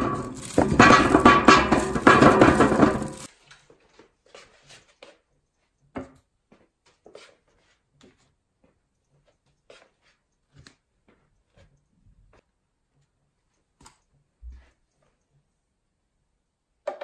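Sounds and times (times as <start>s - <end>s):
plastic bag crinkling: 0.0s - 3.3s
plastic pots knocking on ceramic tray: 0.0s - 3.3s
potatoes tumbling into metal canister: 0.0s - 3.3s.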